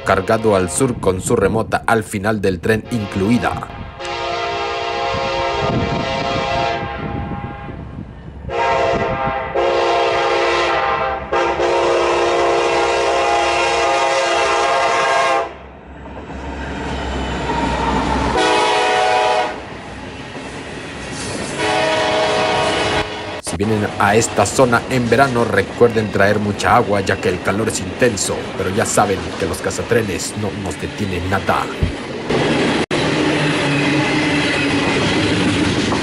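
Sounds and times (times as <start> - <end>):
low rumble of train: 0.0 - 36.0
locomotive air horn blasts: 2.9 - 7.9, 8.5 - 15.6, 18.3 - 19.6, 21.6 - 24.4
hopper cars clattering over rails: 23.9 - 36.0.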